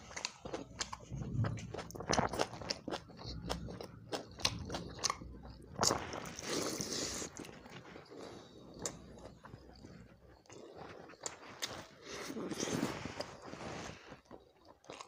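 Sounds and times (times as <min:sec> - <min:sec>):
person chewing and mouth smacks: 0:00.0 - 0:13.3, 0:14.1 - 0:15.0.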